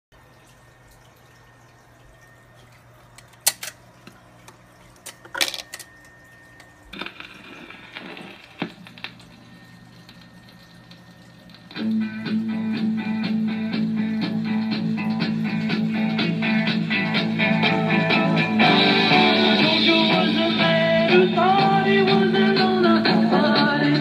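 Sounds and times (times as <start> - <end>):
record changer clicks and clunks: 3.1 - 9.4
stylus surface crackle: 6.9 - 11.7
music from record: 7.0 - 9.4, 11.5 - 24.0.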